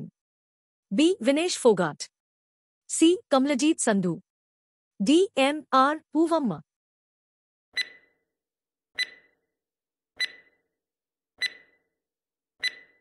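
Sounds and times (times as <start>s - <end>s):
countdown timer ticks: 7.8s - 8.1s, 9.0s - 9.3s, 10.2s - 10.5s, 11.4s - 11.8s, 12.6s - 13.0s.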